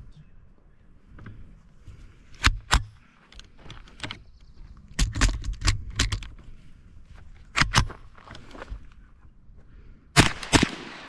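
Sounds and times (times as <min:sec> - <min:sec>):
rifle shots: 0:10.2 - 0:11.0.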